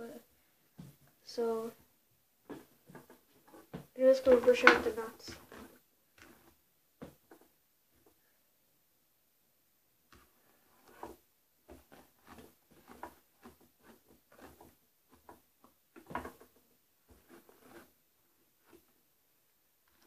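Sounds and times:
hairbrush brushing hair: 4.0s - 6.5s.

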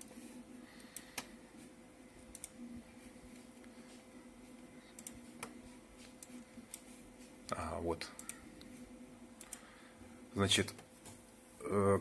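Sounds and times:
faint steady hum: 0.0s - 12.0s
computer mouse clicks: 0.8s - 1.3s, 2.3s - 2.6s, 4.9s - 6.9s, 8.1s - 8.7s, 9.4s - 9.7s.

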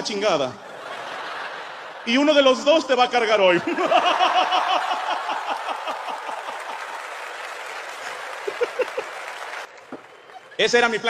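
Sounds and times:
audience laughing: 0.6s - 9.7s
audience applauding: 4.0s - 11.0s.

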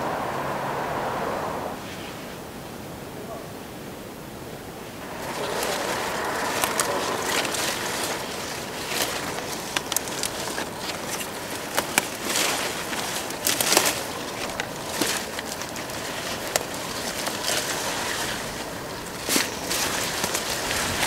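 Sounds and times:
plants rustling and crackling: 4.8s - 21.0s
leaves swishing: 4.9s - 21.0s
leaves and stems snapping: 5.0s - 21.0s.

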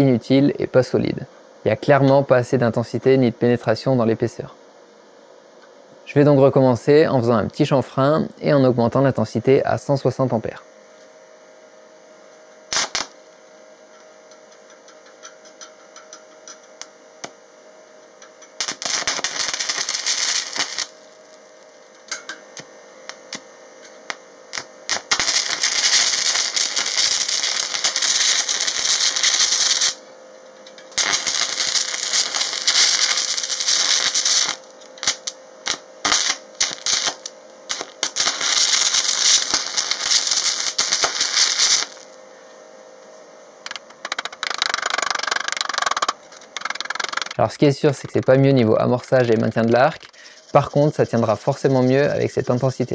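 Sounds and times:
electrode scratching clicks: 12.7s - 13.1s, 31.0s - 42.0s, 43.7s - 52.9s
welding arc crackling: 12.7s - 30.1s, 30.7s - 42.2s, 43.6s - 52.9s.

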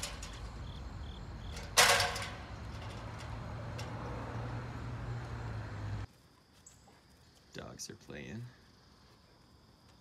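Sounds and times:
street noise: 0.0s - 6.2s.

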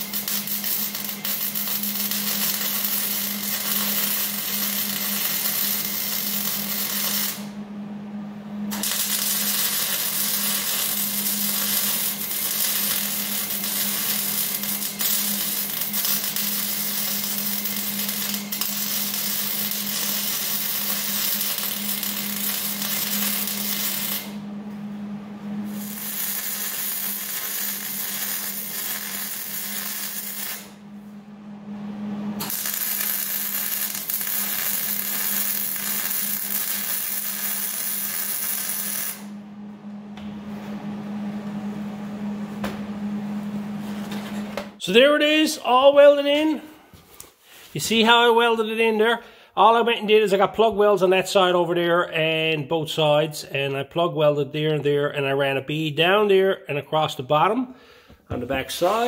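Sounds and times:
arc welding sizzling hiss: 0.0s - 7.6s, 8.7s - 24.4s, 25.7s - 30.8s, 32.4s - 39.3s
constant low hum: 0.0s - 44.8s.

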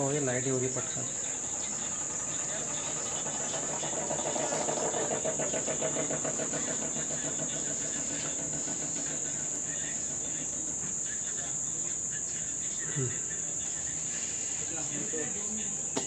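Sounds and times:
pulsing engine-like hum: 0.0s - 12.6s
crickets chirping: 0.0s - 16.0s.

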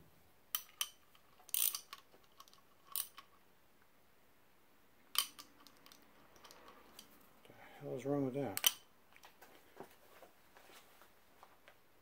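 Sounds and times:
socket ratchet clicking: 0.6s - 3.3s, 5.2s - 7.1s.

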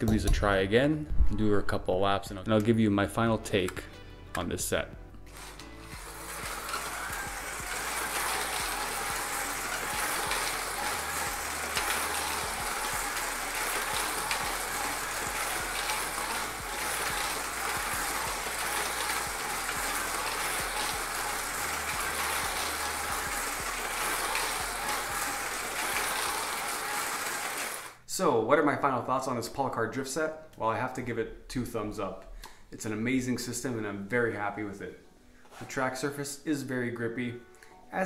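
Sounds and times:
slot car motors whirring: 5.3s - 28.0s.

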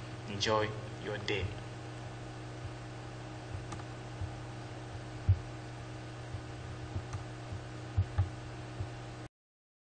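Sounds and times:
steady electrical hum: 0.0s - 9.3s
soft low thumps: 2.6s - 9.0s.

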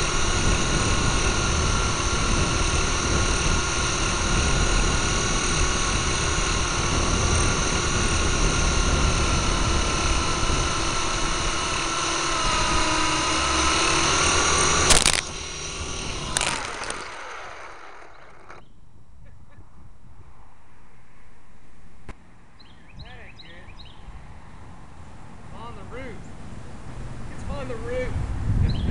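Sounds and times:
wind buffeting microphone: 0.0s - 18.0s, 22.6s - 28.9s
helicopter hitting ground: 0.0s - 18.6s
toy helicopter motor whine: 0.0s - 18.8s, 22.6s - 28.9s.

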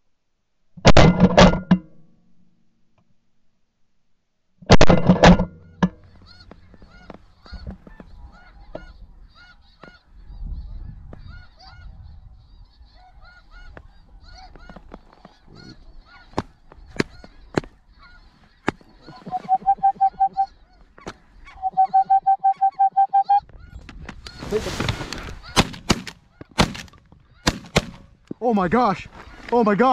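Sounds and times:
geese honking: 6.0s - 27.9s
sharp cracks: 24.9s - 28.4s.

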